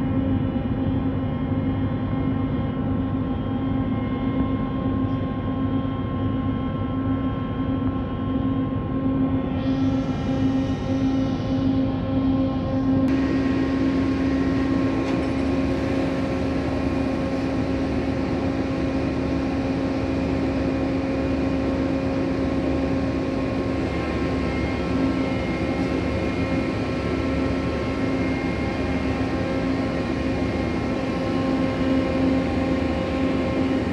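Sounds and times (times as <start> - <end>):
machinery hum: 0.0 - 33.9.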